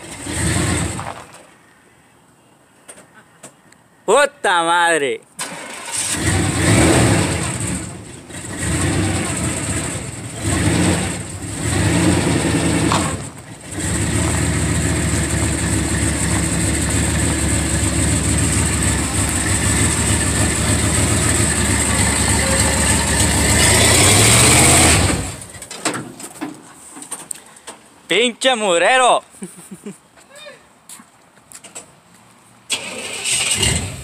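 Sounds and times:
pickup truck engine revving and idling: 0:00.0 - 0:01.0, 0:06.0 - 0:25.6, 0:33.4 - 0:34.0.

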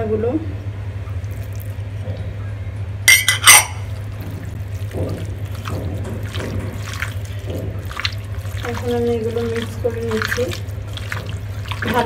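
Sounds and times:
steady low hum: 0:00.0 - 0:12.0
ceramic bowl clinking on glass bowl: 0:03.1 - 0:03.9.

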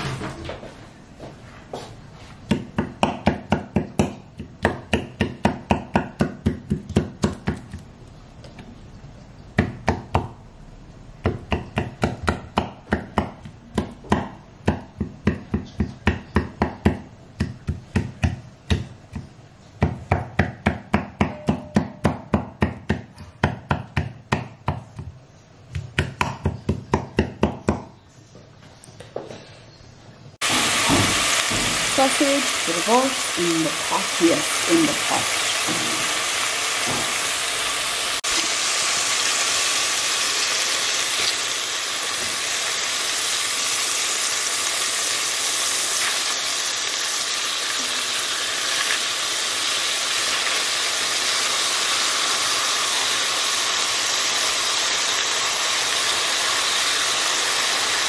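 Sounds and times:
frying sizzle: 0:00.0 - 0:00.4, 0:30.4 - 0:58.0.

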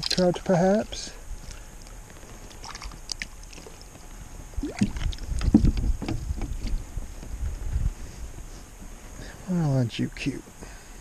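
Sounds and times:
knocks and thumps on plastic kayak: 0:04.8 - 0:07.4.

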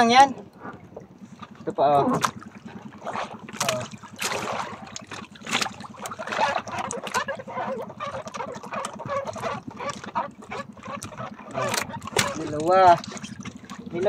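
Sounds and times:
water sloshing against boat: 0:00.0 - 0:14.0
water splashes: 0:00.0 - 0:14.0.

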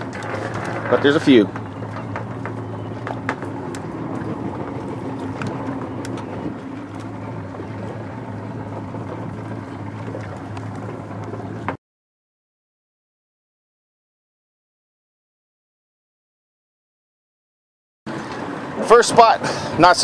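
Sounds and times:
boat motor humming: 0:00.0 - 0:11.8, 0:18.1 - 0:20.0
water noise: 0:00.0 - 0:11.8, 0:18.1 - 0:20.0
wind: 0:00.0 - 0:11.8, 0:18.1 - 0:20.0.

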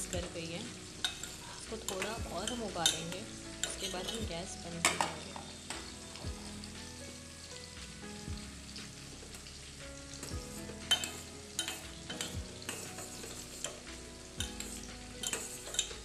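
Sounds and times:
water boiling and bubbling: 0:00.0 - 0:16.0.

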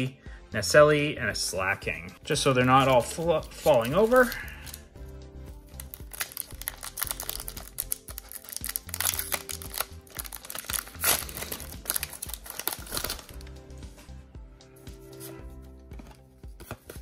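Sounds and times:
foil wrapper crinkling: 0:02.8 - 0:04.8, 0:05.7 - 0:13.5.

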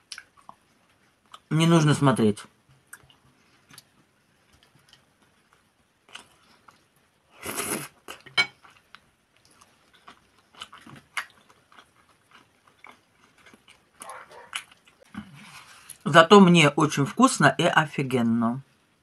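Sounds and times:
wet chewing and lip-smacking: 0:08.1 - 0:15.1.

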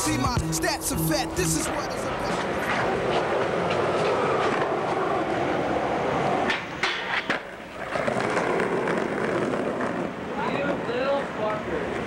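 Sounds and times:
skateboard wheels rolling on pavement: 0:00.0 - 0:12.0
skateboard clacks: 0:01.6 - 0:12.0.

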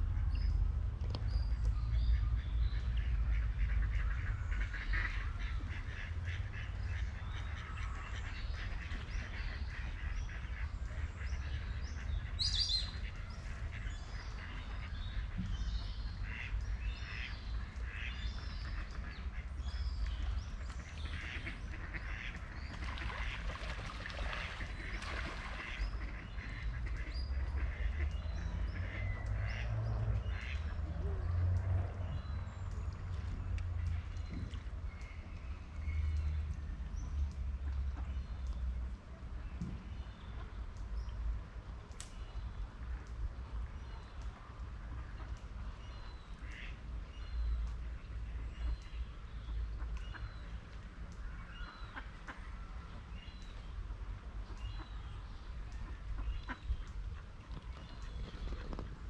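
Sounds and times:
ducks quacking: 0:02.1 - 0:15.5, 0:16.2 - 0:19.8, 0:20.7 - 0:31.4.

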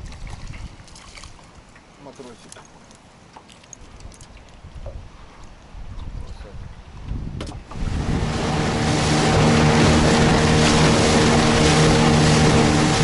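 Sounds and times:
wind and water hiss: 0:00.0 - 0:13.0
outboard motor running: 0:07.7 - 0:13.0.

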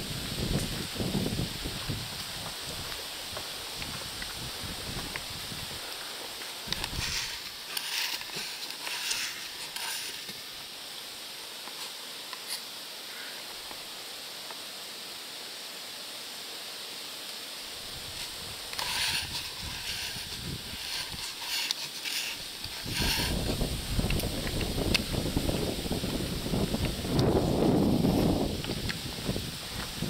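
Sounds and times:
wind buffeting microphone: 0:00.0 - 0:06.0, 0:06.6 - 0:07.5, 0:17.8 - 0:21.3, 0:22.4 - 0:30.0
leaves rustling in wind: 0:00.0 - 0:30.0
steady high hiss: 0:00.0 - 0:30.0.

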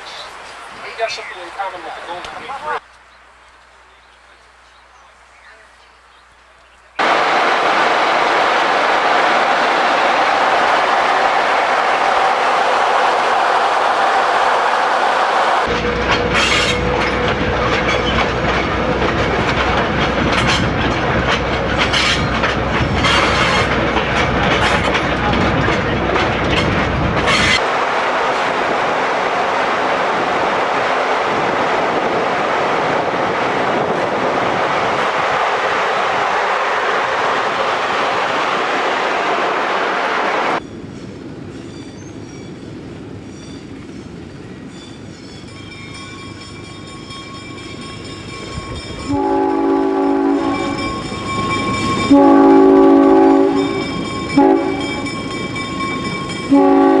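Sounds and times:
train horn blasts: 0:49.0 - 0:50.9, 0:52.0 - 0:55.1, 0:56.4 - 0:57.0.

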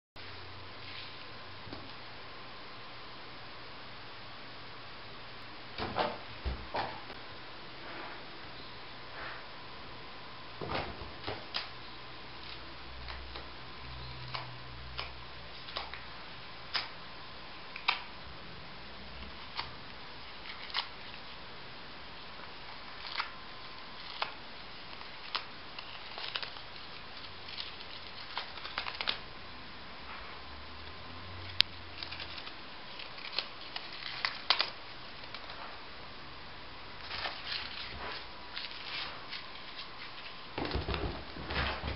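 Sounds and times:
paper ball clicks and rustles: 0:22.7 - 0:29.2, 0:32.0 - 0:35.7.

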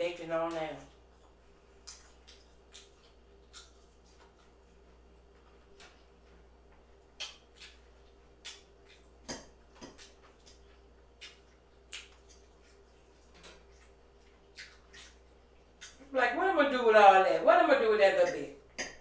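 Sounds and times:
faint steady hum: 0:00.0 - 0:19.0
chewing mouth sounds: 0:00.9 - 0:06.4, 0:07.0 - 0:16.1.

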